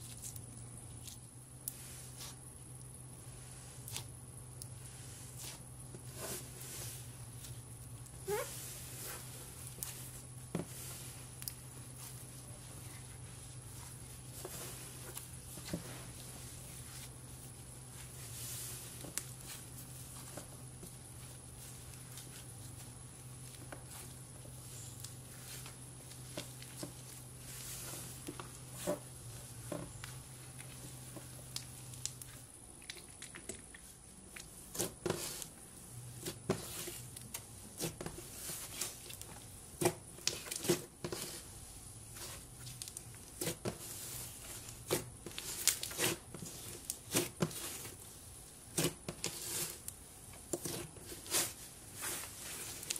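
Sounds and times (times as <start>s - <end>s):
hands squishing slime: 3.4s - 29.1s.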